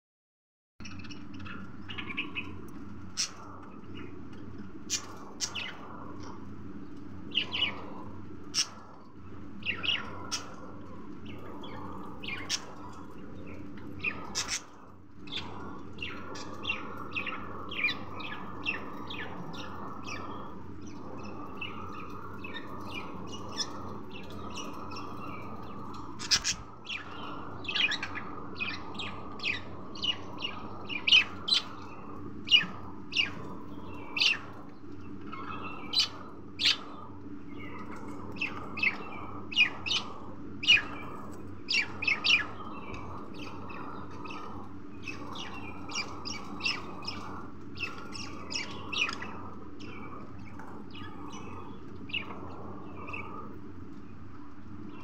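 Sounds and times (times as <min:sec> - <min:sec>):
steady background hum: 0:00.8 - 0:55.0.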